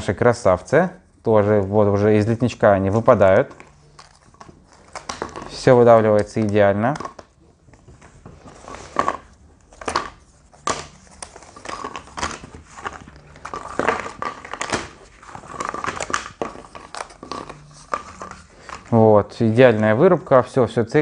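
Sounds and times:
cardboard sheets rustling: 7.6s - 18.9s.

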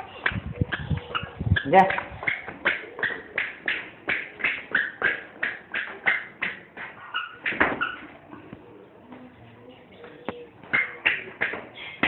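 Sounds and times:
squeaky shoes squeaking: 0.7s - 8.5s.

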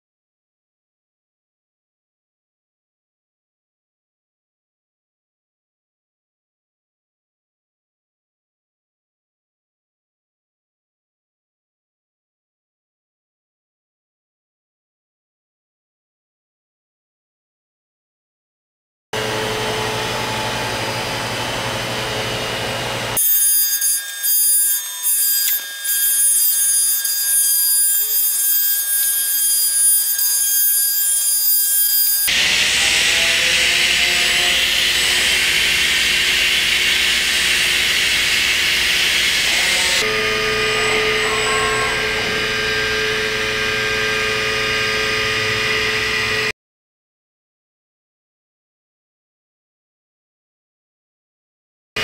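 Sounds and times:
machine hum and whine: 19.2s - 26.6s, 32.3s - 46.5s
milling spindle whining: 23.2s - 32.7s.

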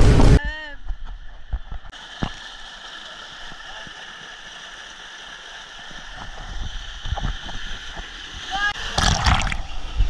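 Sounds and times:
water rushing into slide: 2.0s - 10.0s.

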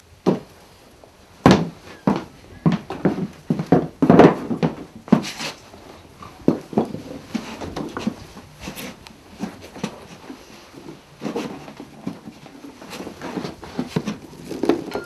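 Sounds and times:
wooden objects knocking on floor: 1.5s - 5.3s.

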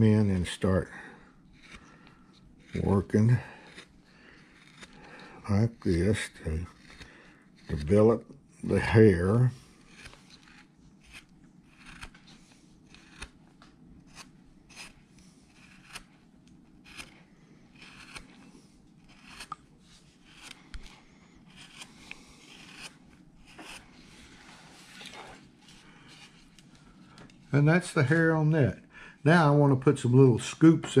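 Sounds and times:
gouge slicing into wood: 4.5s - 5.0s, 9.8s - 12.2s, 12.9s - 13.4s, 14.1s - 16.1s, 16.8s - 17.2s, 17.8s - 18.4s, 19.1s - 19.6s, 21.5s - 23.9s.

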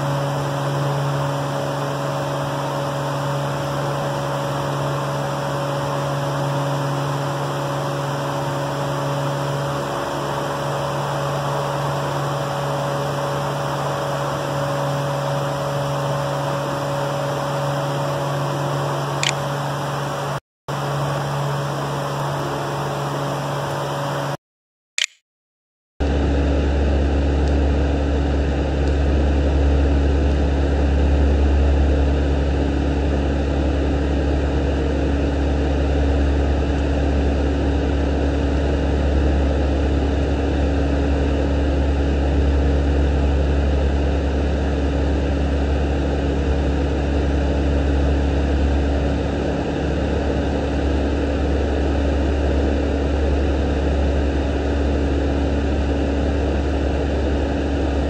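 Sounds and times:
loud low drone: 0.0s - 24.4s, 26.0s - 58.0s
constant hum: 26.0s - 58.0s.

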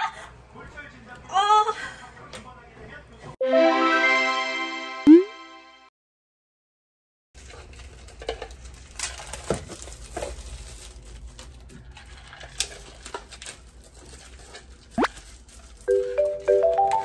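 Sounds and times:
plastic crinkling: 7.4s - 16.1s.

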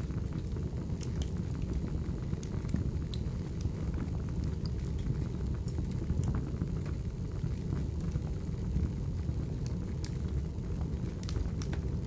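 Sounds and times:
fire crackling and popping: 0.0s - 12.0s
low rumble of flames: 0.0s - 12.0s.

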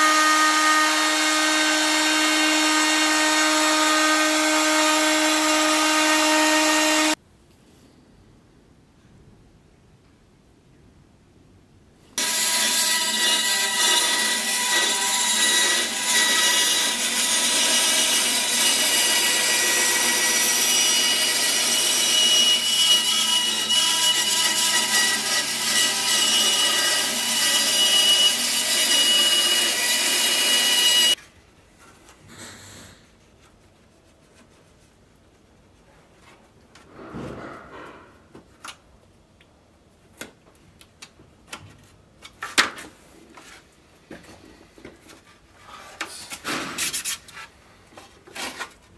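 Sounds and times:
band saw whirring: 12.2s - 31.2s.

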